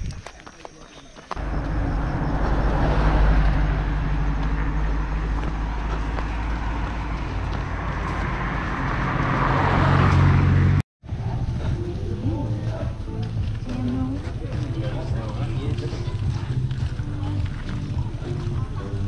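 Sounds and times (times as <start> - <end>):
road traffic noise: 1.3 - 19.0
car passing close by: 1.4 - 10.8.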